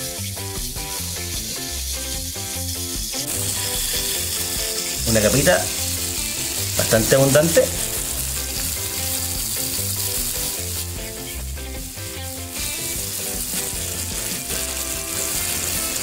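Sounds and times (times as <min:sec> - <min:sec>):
steak sizzling on a grill: 0:00.0 - 0:16.0.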